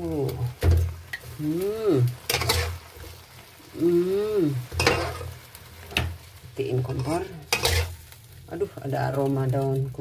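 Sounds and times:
stew sizzling: 0.0s - 10.0s
spatula scraping a pan: 2.1s - 3.5s, 4.6s - 6.2s, 6.8s - 8.1s.

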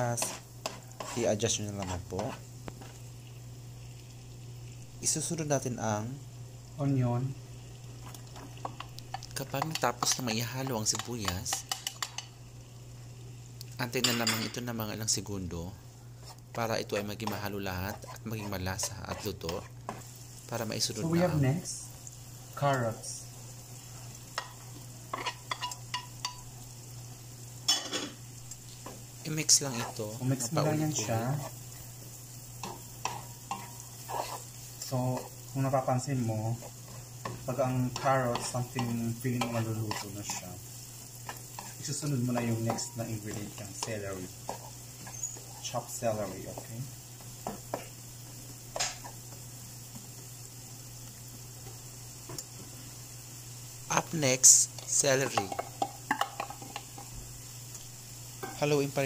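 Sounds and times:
spatula scraping into pan: 0.0s - 3.0s, 24.4s - 26.4s, 32.6s - 35.5s, 36.5s - 45.9s
onion frying in butter: 0.0s - 59.0s
spatula clinking on a plate: 10.9s - 12.3s, 24.4s - 26.4s.

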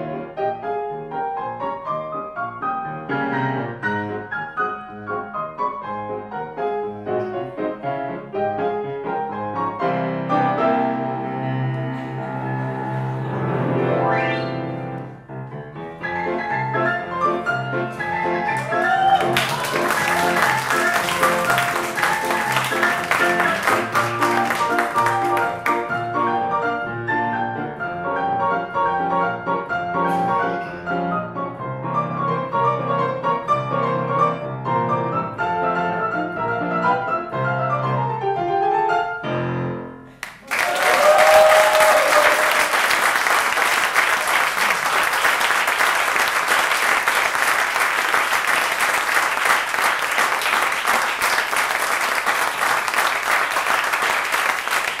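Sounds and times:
ragtime piano: 0.0s - 40.2s
audience applause: 18.0s - 26.2s, 40.2s - 55.0s.

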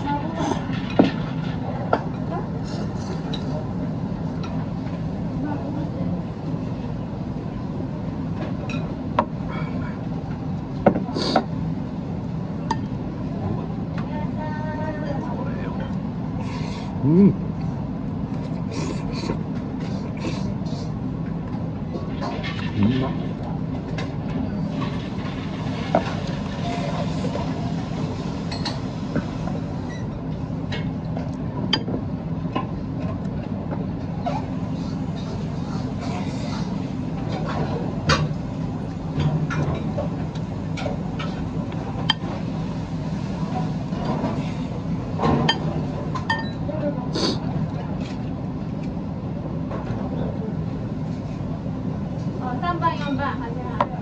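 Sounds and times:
low restaurant hum: 0.0s - 54.0s
tableware clinking: 46.2s - 46.6s.

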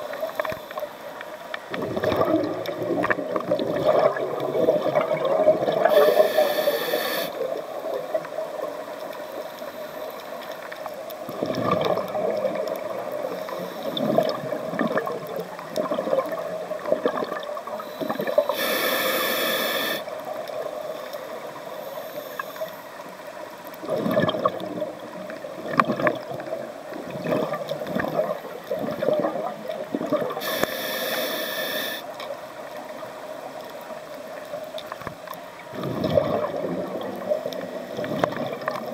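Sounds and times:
steady underwater rush: 0.0s - 10.4s, 11.2s - 32.2s, 35.6s - 38.9s
gurgling exhaled bubbles: 1.7s - 6.5s, 11.3s - 18.8s, 23.8s - 30.6s, 35.7s - 38.9s
hissing regulator inhale: 5.8s - 7.4s, 17.8s - 20.1s, 30.4s - 32.1s.

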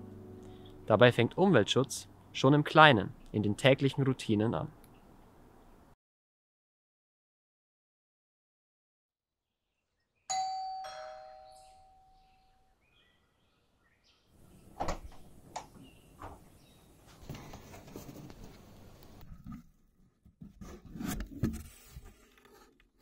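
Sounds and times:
two-tone doorbell chime: 10.3s - 12.5s
rustling: 14.6s - 19.8s.

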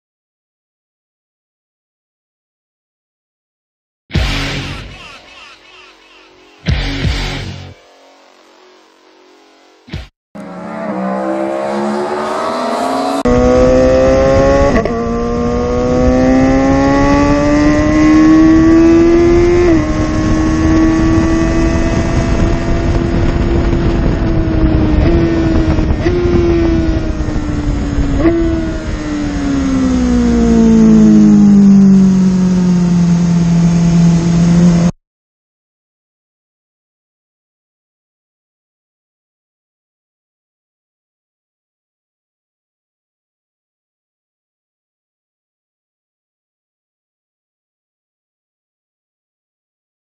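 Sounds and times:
motorcycle engine accelerating: 4.2s - 5.0s, 6.4s - 35.0s
wind rushing: 10.5s - 17.8s, 18.6s - 29.8s.

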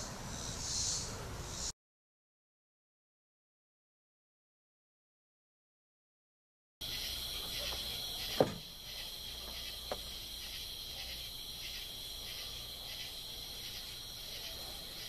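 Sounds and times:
insects trilling: 0.0s - 1.7s, 6.8s - 15.0s
sharp knock: 8.3s - 8.6s.

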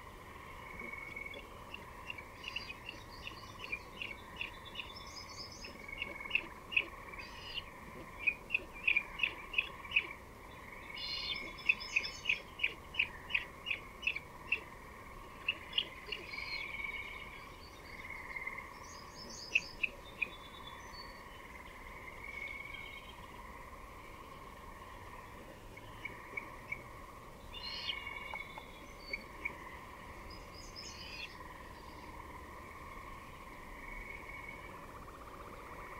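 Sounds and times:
birds chipping and twittering: 0.0s - 35.9s
faint steady drone: 0.0s - 35.9s.

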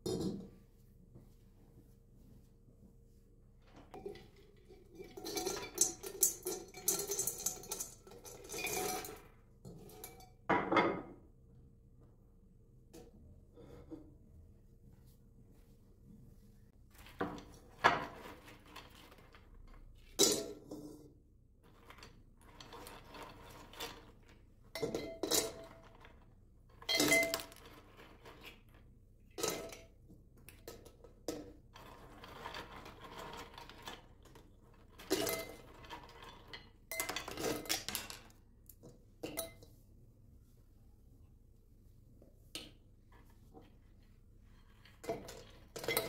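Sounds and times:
nuts clattering into glass jar: 5.2s - 9.2s, 26.8s - 28.6s, 34.9s - 38.3s.

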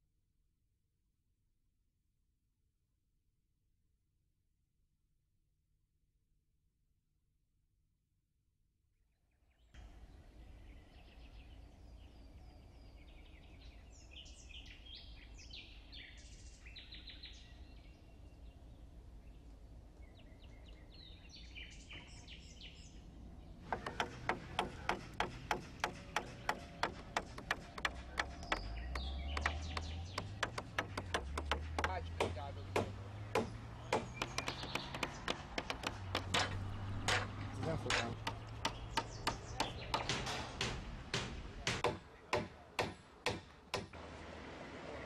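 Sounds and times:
birds chirping and singing: 9.5s - 42.3s
low outdoor hum: 9.8s - 45.0s
hammering on timber: 23.6s - 44.0s.

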